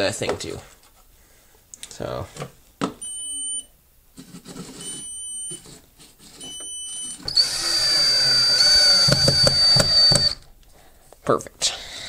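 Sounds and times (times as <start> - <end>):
stud finder high beep: 3.0 - 3.7, 6.4 - 10.4
cordless drill whirring: 7.2 - 10.5
knocks on wall: 9.0 - 10.4.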